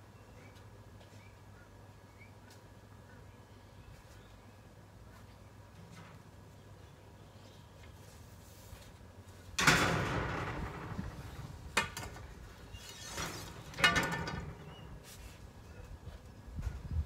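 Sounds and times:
hard objects clattering: 0:09.6 - 0:14.9.

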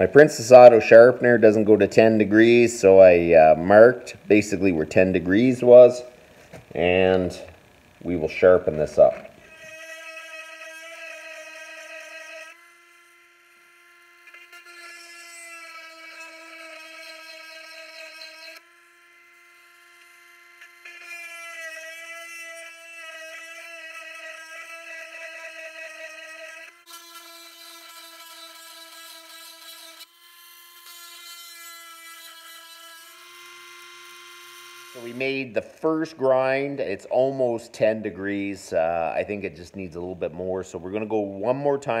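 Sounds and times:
grinding stone rasping on steel: 0:08.1 - 0:40.1
electric chain sharpener motor whine: 0:11.8 - 0:36.2.

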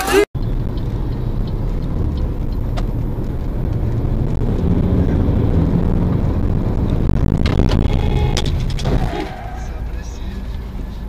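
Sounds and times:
vehicle engine and road rumble: 0:00.0 - 0:11.0
sharp clicks: 0:06.7 - 0:09.2.

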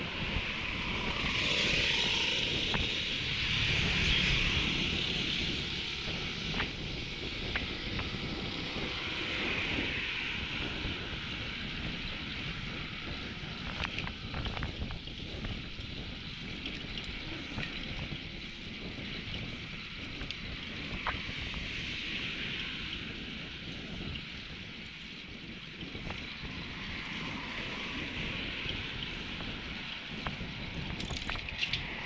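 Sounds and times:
wind rushing over microphone: 0:00.0 - 0:32.0
vehicle passing: 0:00.9 - 0:06.7.

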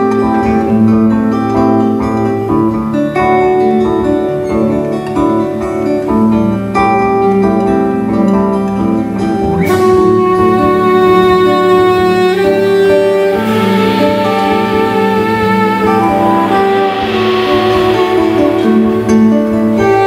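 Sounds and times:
electric guitars: 0:00.0 - 0:20.0
saxophone: 0:09.4 - 0:20.0.

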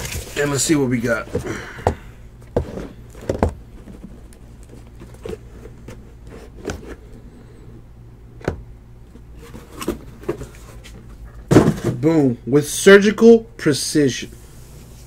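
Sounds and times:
cardboard boxes knocking: 0:01.2 - 0:03.6, 0:11.5 - 0:12.1.

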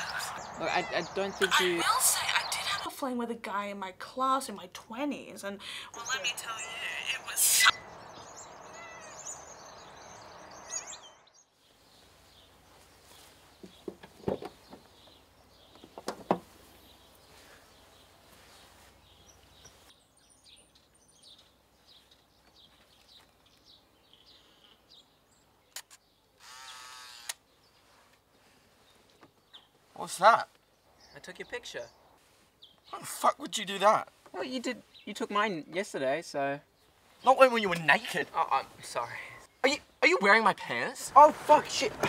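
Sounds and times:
faint bird chirps: 0:05.9 - 0:13.8, 0:14.6 - 0:26.9
soft knocks: 0:13.6 - 0:16.6.

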